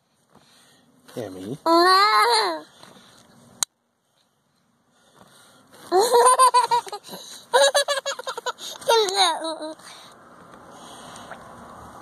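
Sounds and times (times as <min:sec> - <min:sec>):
toddler girl giggling: 0:05.9 - 0:09.8.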